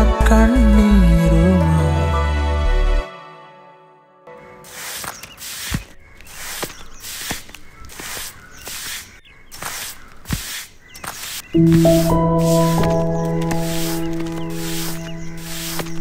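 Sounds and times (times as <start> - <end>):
soft music: 0.0 - 4.8, 11.6 - 16.0
broom sweeping earth: 4.6 - 16.0.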